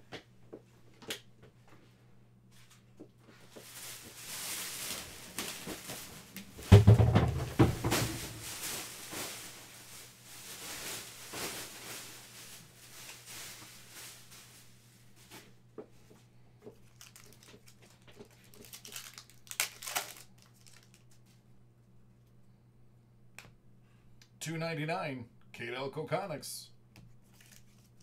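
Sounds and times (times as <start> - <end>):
packaging crinkling and rustling: 3.4 - 15.5, 16.7 - 21.4, 27.1 - 28.0
loud thump: 6.7 - 8.4.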